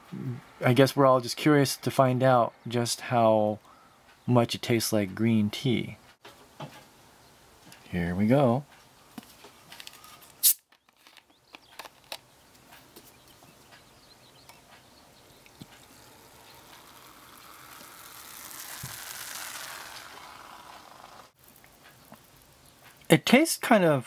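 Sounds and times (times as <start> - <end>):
carbonation fizzing: 15.5 - 22.6.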